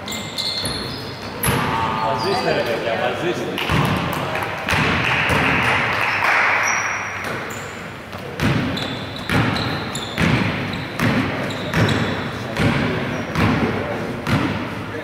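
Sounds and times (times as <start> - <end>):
basketball bouncing on wooden floor: 8.1 - 14.6.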